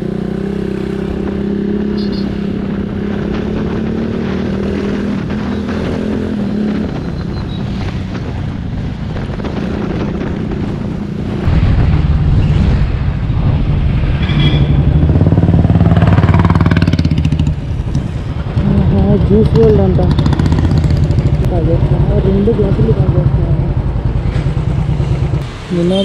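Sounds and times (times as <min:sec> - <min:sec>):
road and wind noise: 0:00.0 - 0:26.0
motorcycle engine running: 0:14.7 - 0:25.4.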